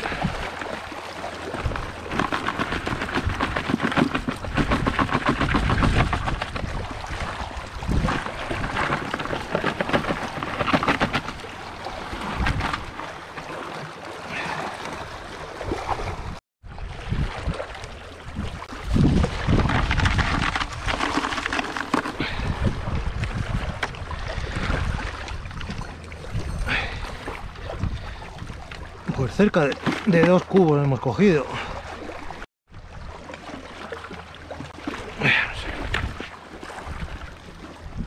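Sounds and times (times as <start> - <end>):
water sloshing: 0.0 - 38.0
crayfish shells clicking and scrabbling: 1.6 - 6.7, 8.1 - 11.5, 19.5 - 22.2.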